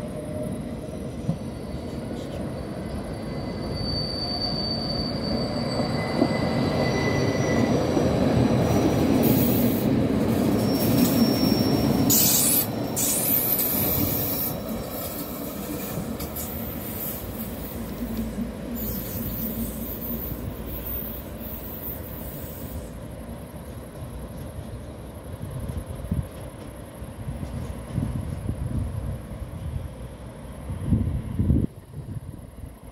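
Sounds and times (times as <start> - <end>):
train wheels squealing: 0.0 - 23.8
train rumbling past: 0.0 - 32.9.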